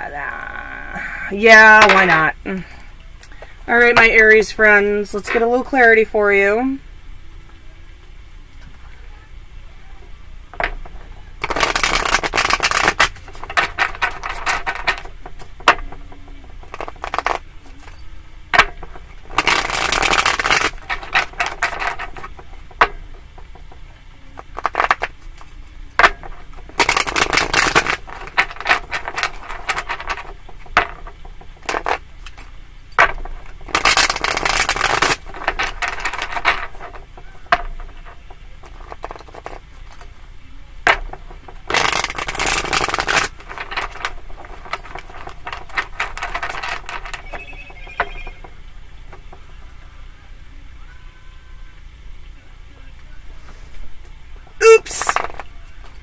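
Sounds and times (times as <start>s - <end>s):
cards riffle shuffling: 11.4s - 15.4s, 18.6s - 22.8s.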